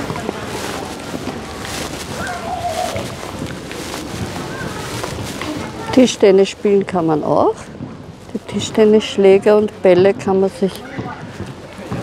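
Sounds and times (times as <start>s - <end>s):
distant children's voices: 0.0s - 6.4s
steady rush of background noise: 0.0s - 12.0s.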